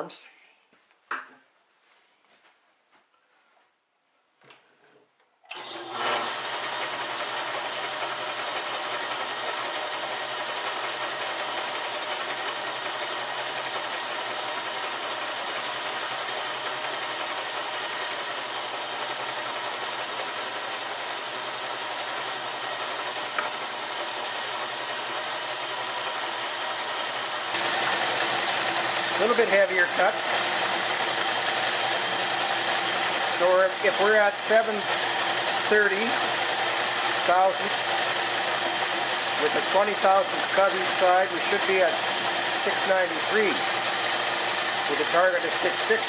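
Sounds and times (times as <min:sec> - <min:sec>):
metal lathe running: 0:05.5 - 0:46.0.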